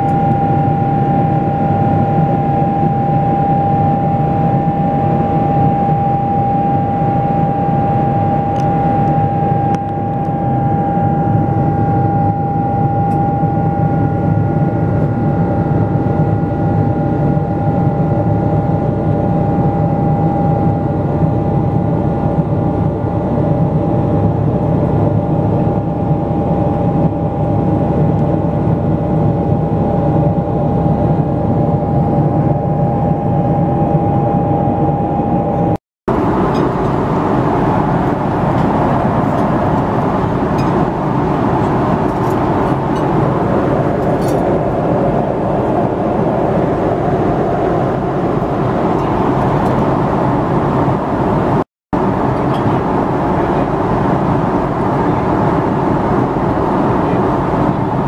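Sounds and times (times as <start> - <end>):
jet engine roar in cabin: 0.0 - 58.0
steady high engine whine: 0.0 - 58.0.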